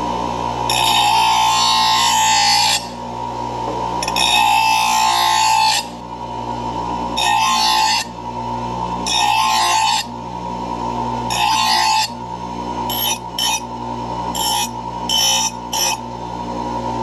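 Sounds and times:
bench grinder humming: 0.0s - 17.0s
blade grinding on wheel: 4.0s - 5.9s, 11.3s - 12.2s, 12.9s - 16.1s.

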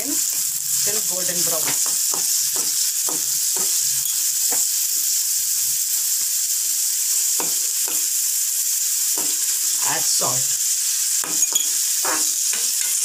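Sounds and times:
onions sizzling in oil: 0.0s - 13.0s
spoon scraping a pan: 0.2s - 5.2s, 9.0s - 9.8s, 10.8s - 13.0s.

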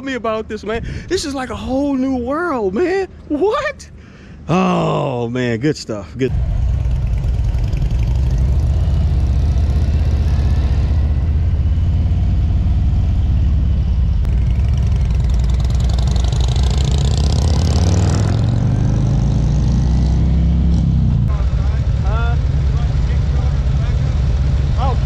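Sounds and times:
motorcycle engine running: 6.3s - 19.8s, 20.8s - 25.0s.

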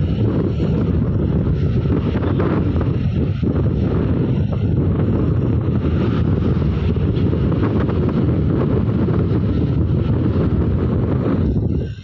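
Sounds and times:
motorbike riding noise: 0.0s - 12.0s
wind buffeting microphone: 0.0s - 12.0s.

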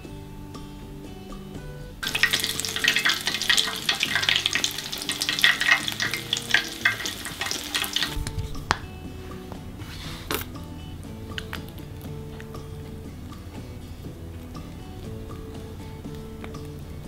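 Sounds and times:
soft background music: 0.0s - 17.0s
food sizzling in hot oil: 2.0s - 8.3s.

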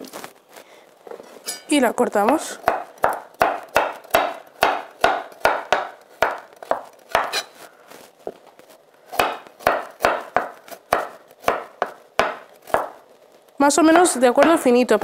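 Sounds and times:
knife chopping on wooden board: 2.2s - 7.5s, 9.1s - 13.0s.

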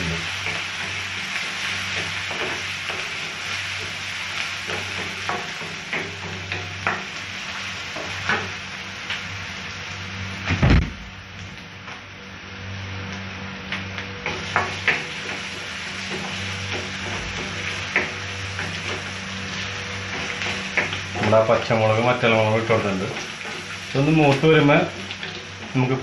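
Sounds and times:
frying sizzle with crackles: 0.0s - 26.0s
low hum: 9.1s - 14.4s.

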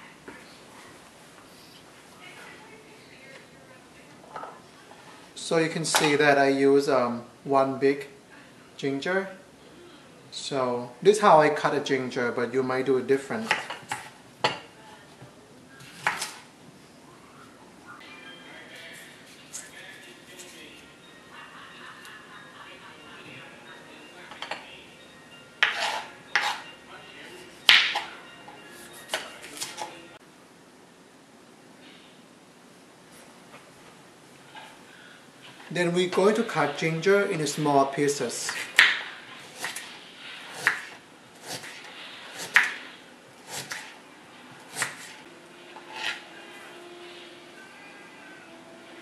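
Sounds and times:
knife chopping on cutting board: 25.6s - 26.6s, 40.6s - 41.8s, 42.4s - 42.8s, 43.5s - 44.0s.

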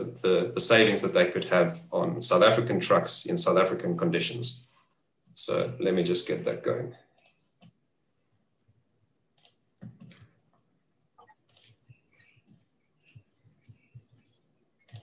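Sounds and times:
computer mouse and keyboard clicks: 7.2s - 7.8s, 9.4s - 10.4s, 11.2s - 12.6s.

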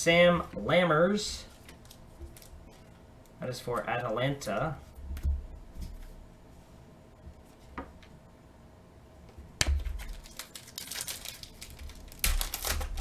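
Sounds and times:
cards clicking and rustling: 9.7s - 13.0s.

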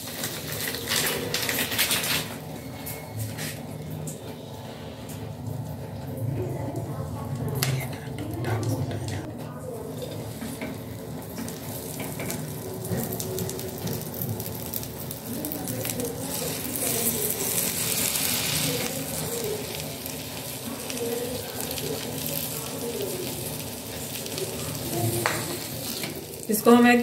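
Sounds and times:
butter sizzling on a griddle: 9.9s - 27.0s.

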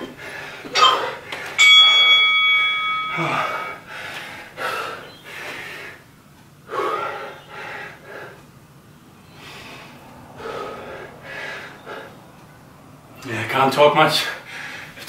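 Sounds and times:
man breathing hard: 0.0s - 1.6s, 3.1s - 8.4s, 9.2s - 12.3s, 14.4s - 15.0s.

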